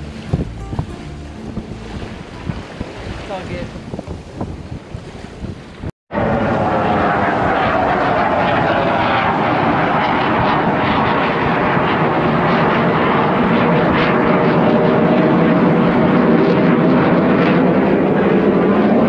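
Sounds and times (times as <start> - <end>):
aircraft engines droning overhead: 0.0 - 5.4, 6.1 - 19.0.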